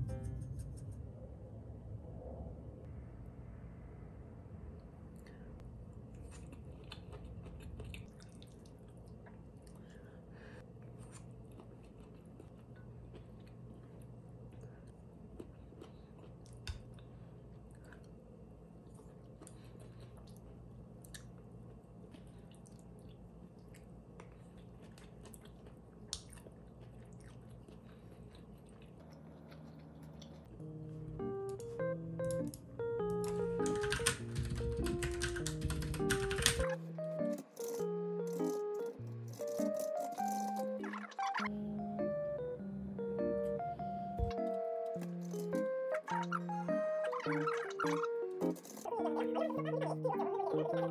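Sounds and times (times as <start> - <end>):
low room hum: 0.0 - 50.9
soft chewing: 5.3 - 30.6, 37.2 - 41.0, 47.4 - 50.9.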